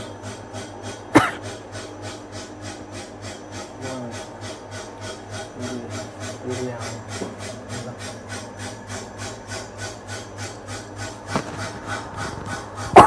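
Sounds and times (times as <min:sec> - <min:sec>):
low machine hum: 0:00.0 - 0:13.0
lathe tool rasping on wheel: 0:00.3 - 0:13.0.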